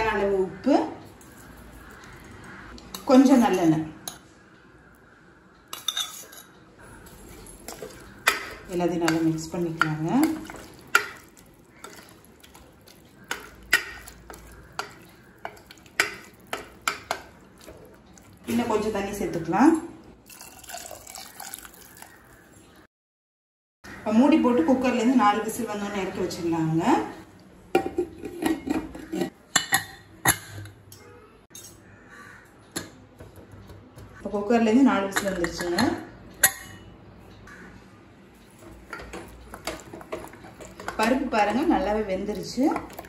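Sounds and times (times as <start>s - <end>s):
spoon clinking metal pot: 5.7s - 17.7s
spoon stirring in pot: 5.7s - 19.6s, 27.7s - 30.6s, 38.4s - 43.0s.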